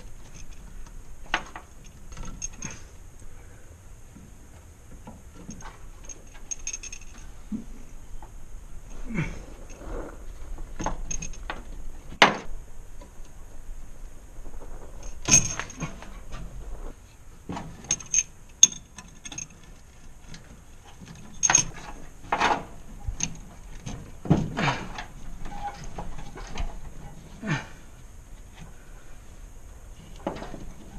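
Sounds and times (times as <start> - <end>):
metallic clinks and jingles: 0.0 - 0.8, 1.6 - 3.0, 5.4 - 7.4, 10.8 - 11.5, 15.0 - 16.1, 17.8 - 19.8, 21.0 - 22.0.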